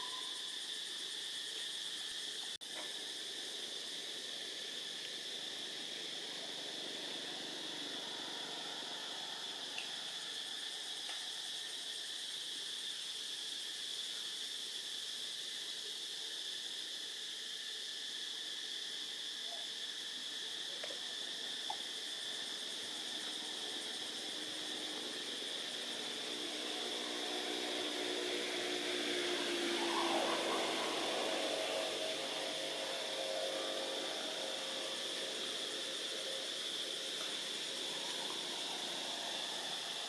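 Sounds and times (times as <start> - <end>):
faint hiss: 0.0 - 40.0
insects droning: 0.0 - 40.0
low engine-like hum: 22.8 - 40.0.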